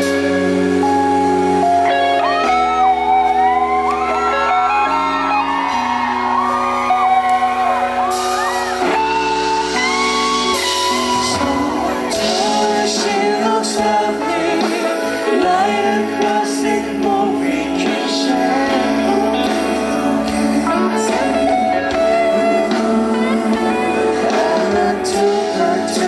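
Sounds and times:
live band with electric guitar: 0:00.0 - 0:26.0
man singing into a microphone: 0:10.9 - 0:26.0.

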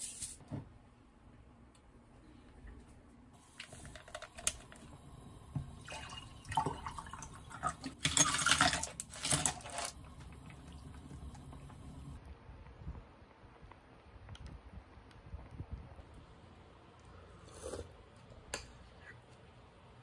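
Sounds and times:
drink pouring over ice: 0:03.6 - 0:12.0.

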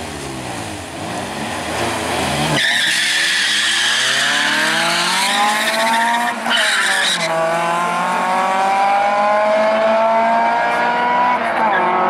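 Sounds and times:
racing car engine at full throttle: 0:00.0 - 0:12.0
tire screech: 0:01.0 - 0:07.6.

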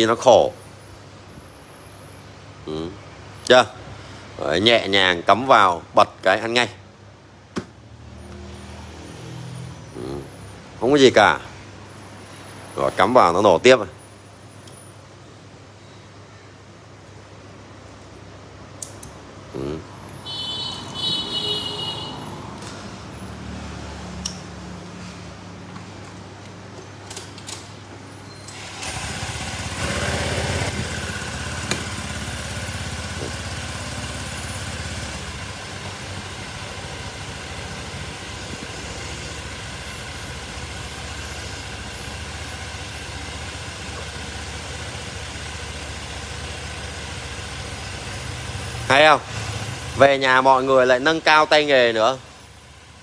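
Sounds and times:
scooter engine starting and idling: 0:28.5 - 0:50.3.

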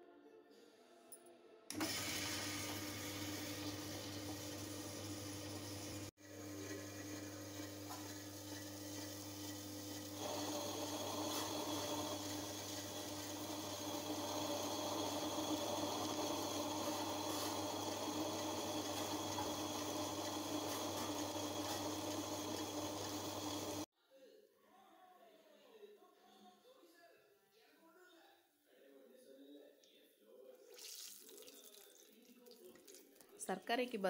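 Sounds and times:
wet grinder motor hum: 0:01.7 - 0:23.9.

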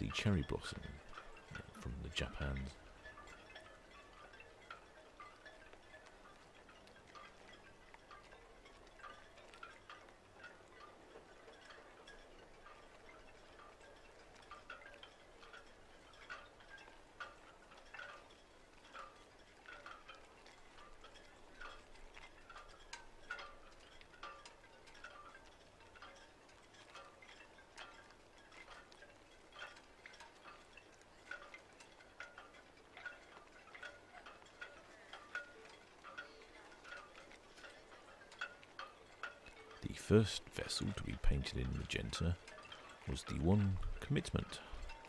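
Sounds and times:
soft chime notes tinkling: 0:00.0 - 0:17.5.

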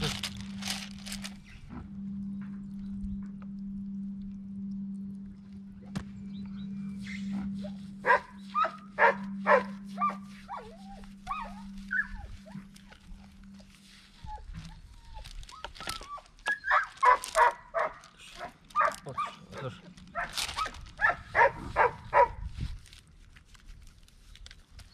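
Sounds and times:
steady low hum: 0:00.0 - 0:15.6
dog whining and yelping: 0:07.1 - 0:12.7, 0:14.2 - 0:17.9
dog barking: 0:08.0 - 0:10.7, 0:16.7 - 0:22.4.

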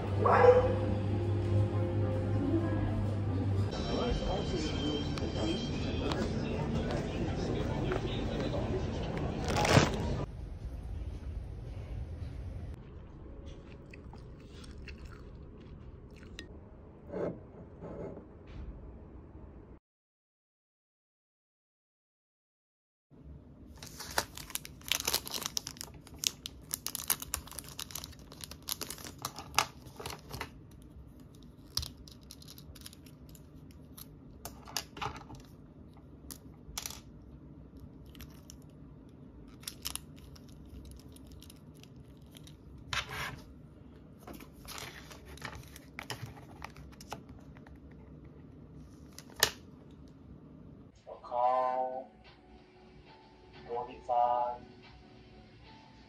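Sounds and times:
packaging crinkling and tearing: 0:09.4 - 0:10.1, 0:23.8 - 0:34.1, 0:39.5 - 0:42.9.

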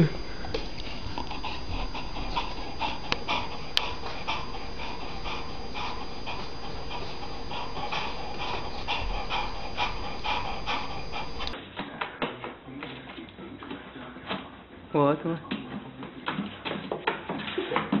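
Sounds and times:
dog panting quickly: 0:00.5 - 0:11.6.

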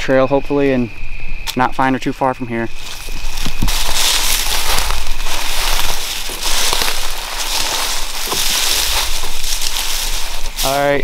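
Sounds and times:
footsteps crunching dry leaves: 0:02.7 - 0:11.0.

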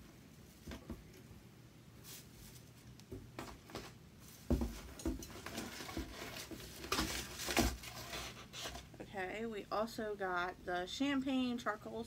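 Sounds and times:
items knocking and clunking: 0:03.1 - 0:09.0
packaging rustling: 0:05.2 - 0:08.9.

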